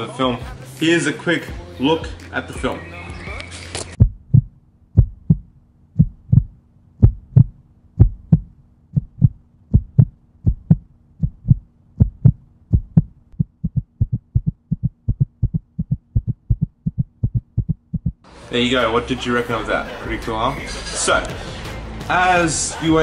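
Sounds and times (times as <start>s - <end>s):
heartbeat thumps: 4.0s - 18.3s.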